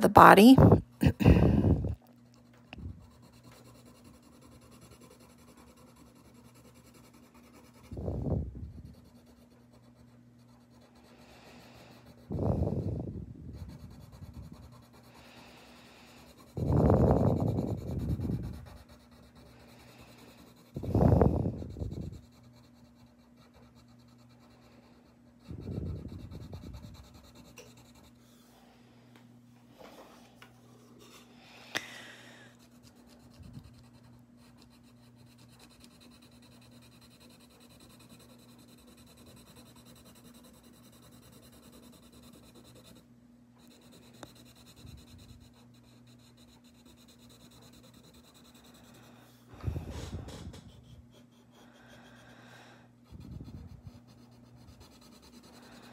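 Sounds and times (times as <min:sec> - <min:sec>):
faint steady hum: 0:00.0 - 0:55.9
pencil scratching on paper: 0:02.3 - 0:28.4, 0:32.6 - 0:52.4, 0:53.0 - 0:55.9
short low puffs: 0:49.5 - 0:51.0.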